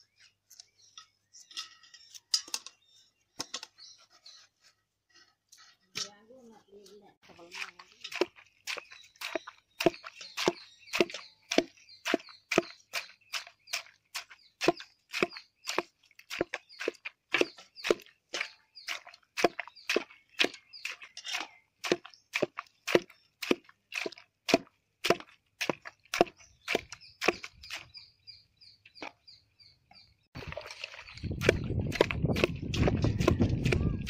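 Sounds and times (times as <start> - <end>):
wooden masher pounding in a metal pot: 7.3 - 27.9, 31.2 - 34.0.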